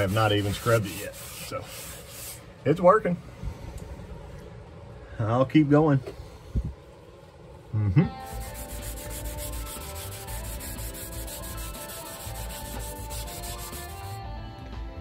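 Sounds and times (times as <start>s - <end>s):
scuff pad scrubbing wet metal: 0.0s - 2.4s, 8.2s - 14.2s.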